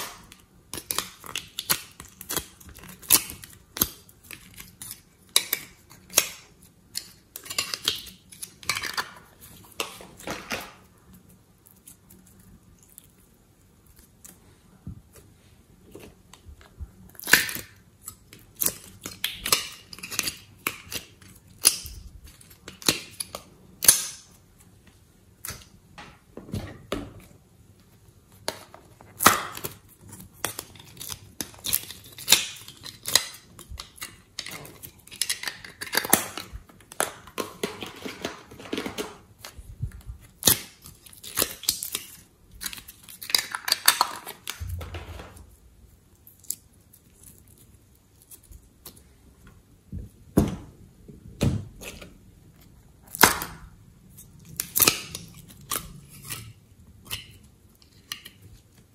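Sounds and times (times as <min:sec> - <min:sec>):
soft clay squishing: 0:00.1 - 0:23.6.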